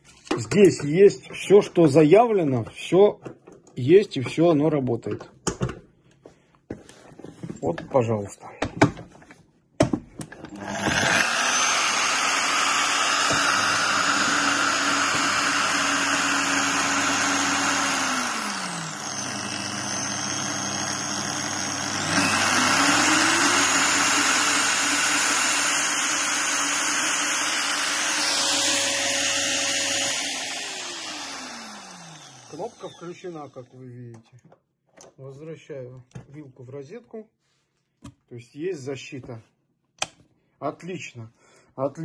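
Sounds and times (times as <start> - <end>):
brush sander motor whine: 10.6 - 33.7.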